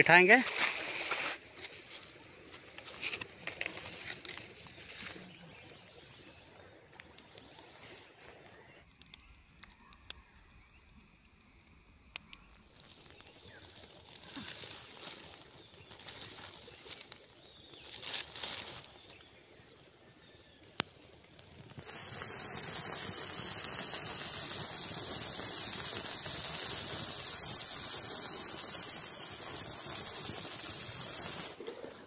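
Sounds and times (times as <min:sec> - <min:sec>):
high-pitched insect chorus: 0:00.0 - 0:08.5, 0:12.5 - 0:31.6
wood fire crackling: 0:06.9 - 0:07.8, 0:12.5 - 0:31.6
fire pop: 0:20.8 - 0:31.6.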